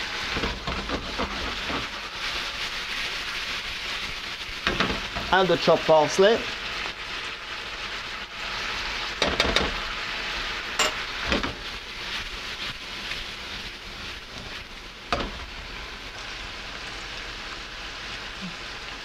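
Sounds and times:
food sizzling in a frying pan: 0.0 - 19.0
pan contents knocking: 9.2 - 9.8, 10.8 - 11.6.

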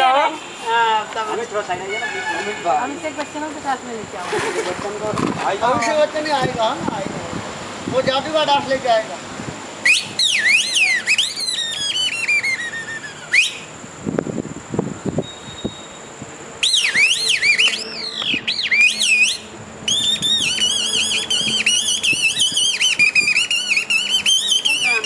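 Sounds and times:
squeaky reed whistle warbling: 9.9 - 13.7, 15.2 - 25.0.

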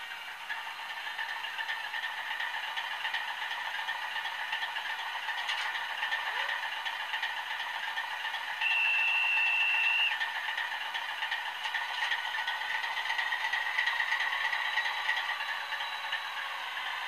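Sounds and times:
diesel engine idle from small speaker: 0.0 - 17.0
steady high tone: 8.6 - 10.1.

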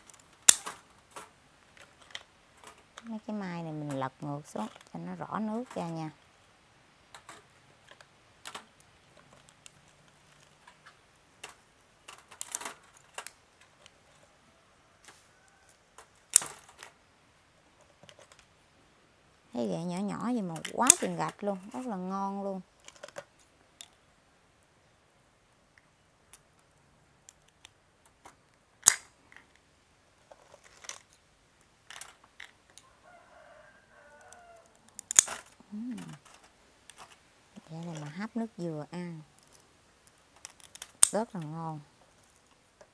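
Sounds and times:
crab shells clicking and knocking: 0.0 - 6.4, 7.0 - 14.4, 15.0 - 17.1, 17.7 - 18.6, 20.1 - 24.2, 25.6 - 42.9
crab shells clacking: 34.1 - 42.6.

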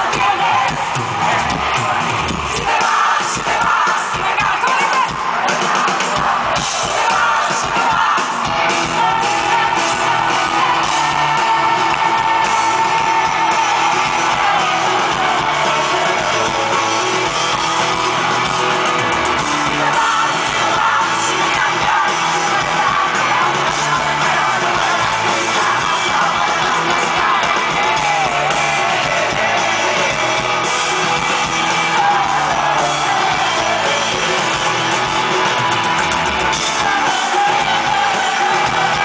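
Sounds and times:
crowd yelling along: 0.0 - 39.0
drums: 0.0 - 39.0
woman singing: 2.6 - 5.6, 6.8 - 11.9, 19.6 - 30.1
electric guitar: 5.0 - 39.0.

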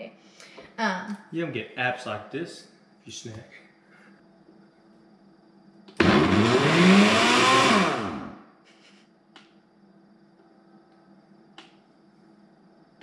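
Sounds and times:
blender motor burst: 6.0 - 8.4.

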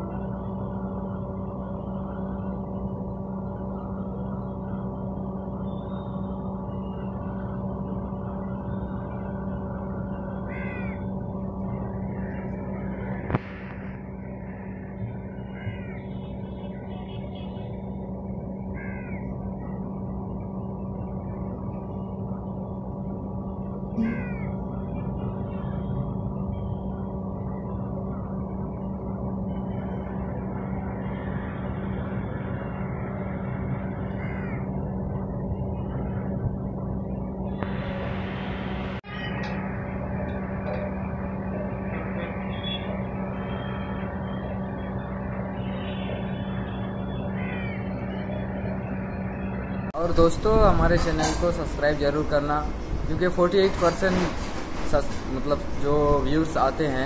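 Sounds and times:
outdoor urban noise: 0.0 - 57.0
steady low hum: 0.0 - 57.0
falling bird calls: 10.1 - 11.3, 15.3 - 17.4, 18.8 - 20.0, 23.9 - 25.9, 33.8 - 34.8, 46.8 - 49.9.

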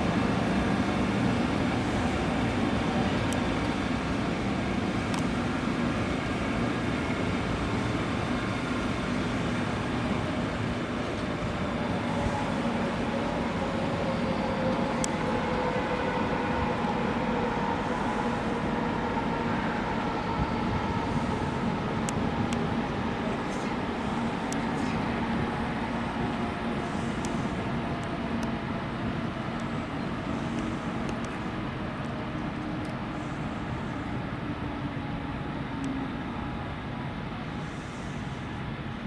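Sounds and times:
faint tones sinking in pitch: 0.0 - 30.2
train wheels rumbling on rails: 0.0 - 39.0.

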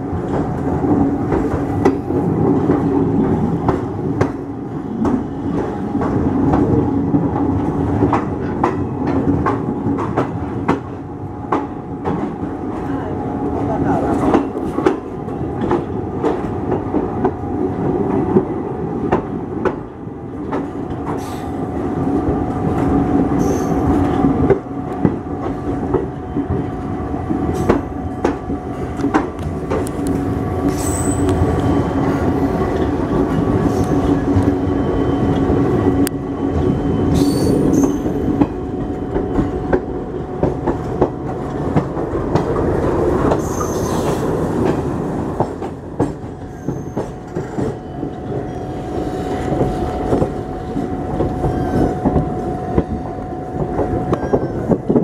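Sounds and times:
rail joint clicks: 0.0 - 55.0
train wheel rumble: 0.0 - 55.0
high wheel squeals: 43.4 - 44.1, 46.5 - 47.1.

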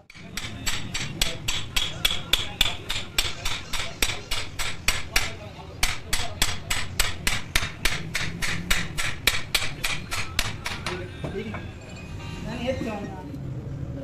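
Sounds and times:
hammer striking steel pin: 0.0 - 11.0.

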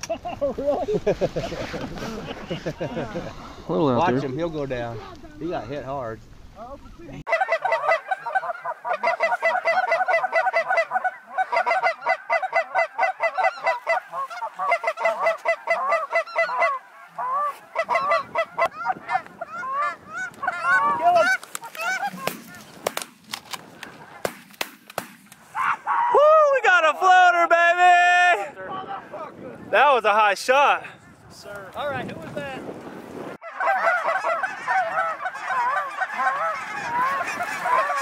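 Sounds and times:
geese honking: 6.9 - 22.9, 33.4 - 38.0
sharp cracks: 21.3 - 25.6.

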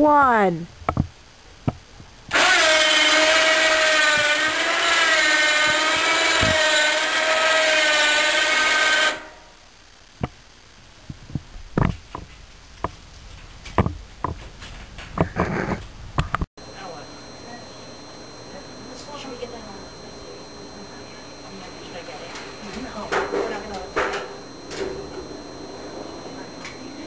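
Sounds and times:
electric winch motor whining: 2.3 - 9.6, 16.8 - 27.0.

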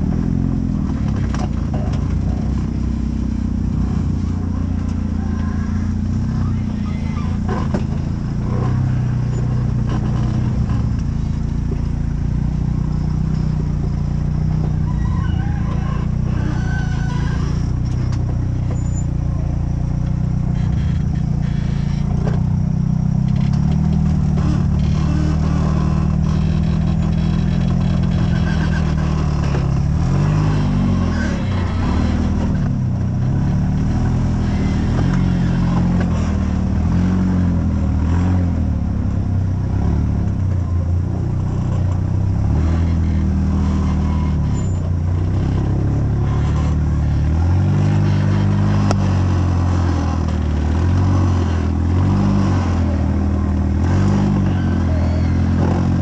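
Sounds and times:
buggy engine revving: 0.0 - 56.0.

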